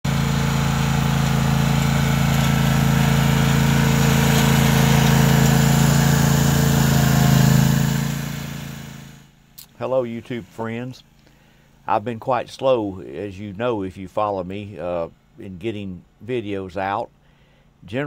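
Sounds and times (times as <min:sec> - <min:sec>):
riding mower engine running: 0:00.0 - 0:11.8.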